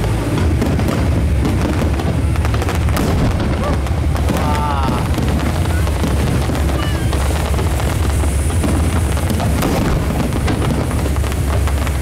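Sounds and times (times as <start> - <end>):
fireworks booming: 0.0 - 12.0
fireworks cracking and crackling: 0.0 - 12.0.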